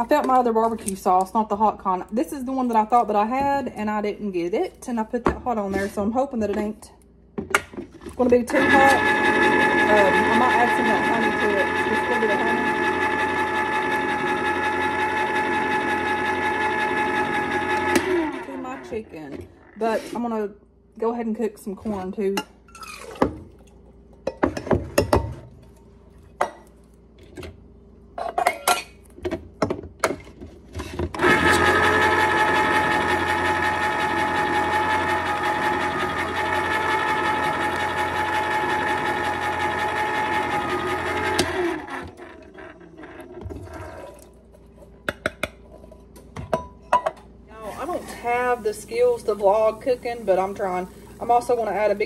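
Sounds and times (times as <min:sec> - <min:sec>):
electric can opener humming: 0:08.2 - 0:20.1, 0:31.2 - 0:44.4, 0:47.5 - 0:52.0.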